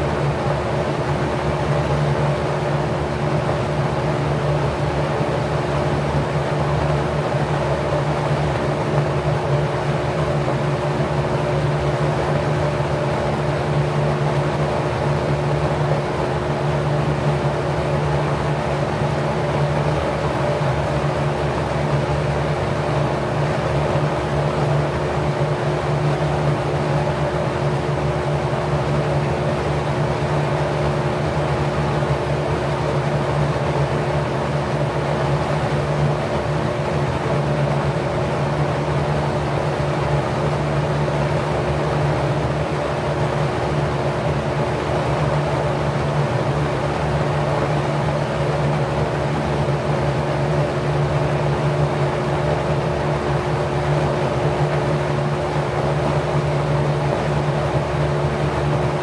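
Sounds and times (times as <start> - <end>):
rush of air from fan blades: 0.0 - 59.0.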